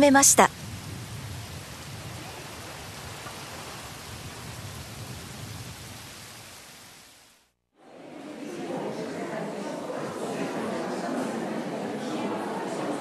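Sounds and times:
steady rain falling: 0.0s - 7.5s.

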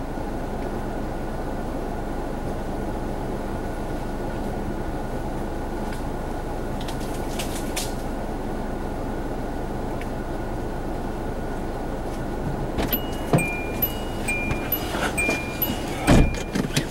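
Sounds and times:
car engine idling: 8.0s - 16.9s.

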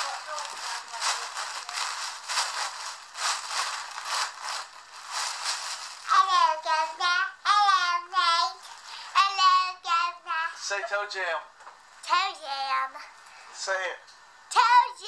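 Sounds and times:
girl singing in helium voice: 6.0s - 10.6s, 14.5s - 15.0s.

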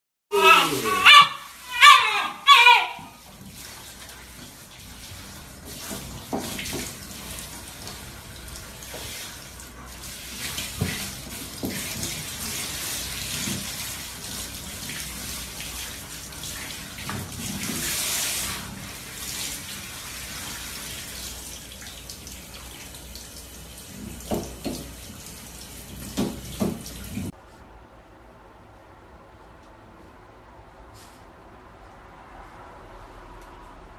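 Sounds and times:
shower spraying water: 0.3s - 27.3s.

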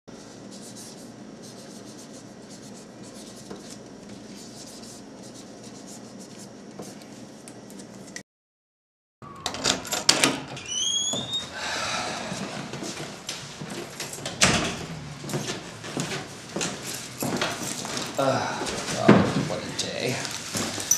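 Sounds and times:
marker scratching on plastic bag: 0.4s - 7.0s
door opening with knocks and squeak: 9.2s - 11.6s, 14.0s - 17.7s.

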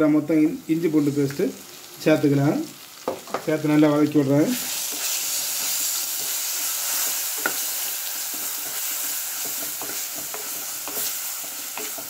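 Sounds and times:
onions sizzling in oil: 0.0s - 12.0s
spatula scraping and knocking pot: 7.0s - 12.0s.

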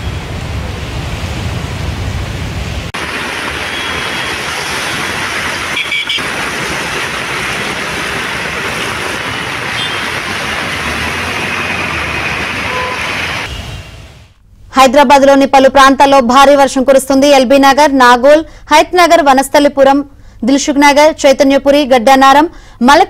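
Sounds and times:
rain and rushing water: 0.0s - 14.4s
road traffic: 0.0s - 14.7s.

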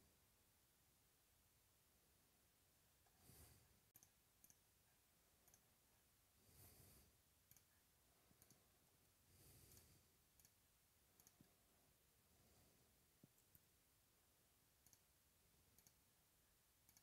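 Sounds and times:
soft hiss: 0.0s - 17.0s
faint clicks: 3.9s - 4.6s, 7.5s - 7.7s, 8.4s - 8.6s, 11.2s - 11.6s, 14.8s - 15.1s, 15.7s - 16.0s.

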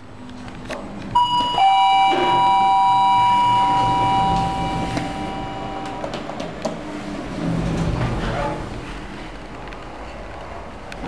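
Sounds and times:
elevator two-tone chime: 1.2s - 6.2s.

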